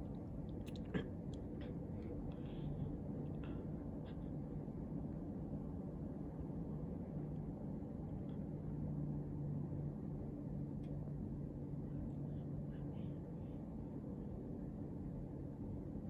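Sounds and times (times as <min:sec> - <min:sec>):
faint rumble: 0:00.0 - 0:16.0
steady low hum: 0:00.0 - 0:16.0.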